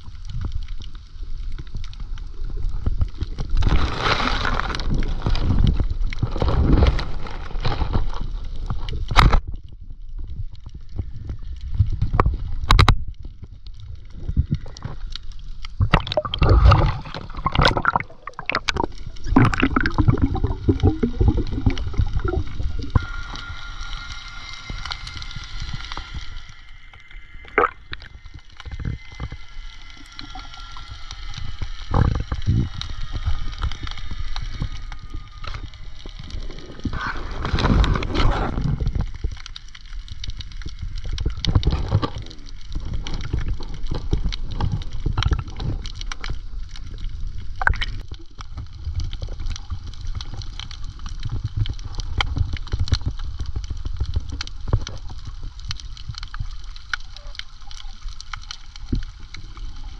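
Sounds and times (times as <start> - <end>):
water gurgling and sloshing: 0.0 - 59.9
constant low rumble: 4.4 - 59.9
water rushing surge: 15.8 - 24.4, 27.4 - 28.1.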